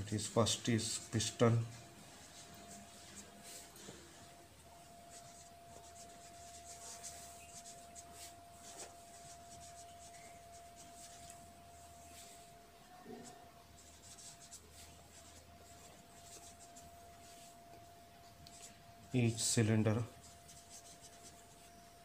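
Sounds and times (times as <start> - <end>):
thin steady tone: 0.0 - 22.0
pen scratching on paper: 5.1 - 11.3, 13.2 - 17.4, 20.2 - 21.9.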